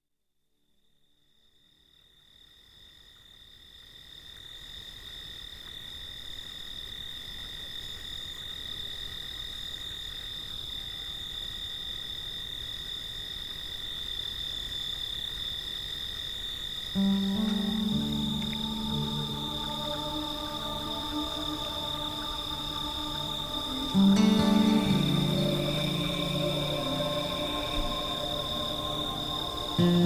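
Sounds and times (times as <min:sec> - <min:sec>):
low steady insect tone: 0:00.0 - 0:30.0
cicadas droning: 0:01.3 - 0:30.0
pulsing insect call: 0:16.5 - 0:30.0.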